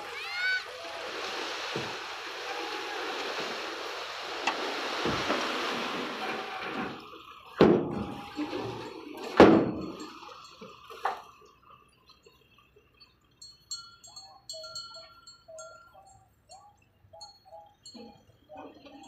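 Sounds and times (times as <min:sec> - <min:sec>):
metal tailgate slamming: 0:07.6 - 0:10.0.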